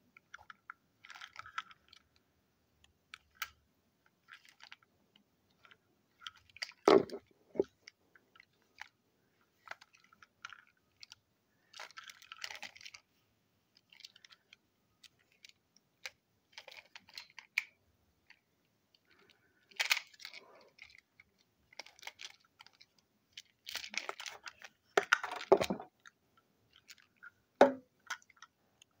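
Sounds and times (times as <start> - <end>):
plastic toy clicks and rattles: 0.2 - 2.1, 9.6 - 13.0, 13.8 - 18.4, 19.2 - 26.1
toy clunk: 27.6 - 28.2.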